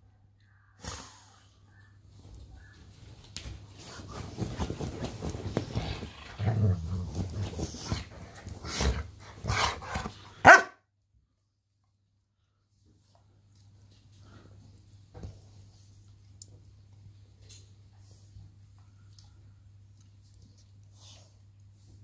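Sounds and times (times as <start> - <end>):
dog growling: 5.7 - 10.1
dog barking: 10.4 - 10.8.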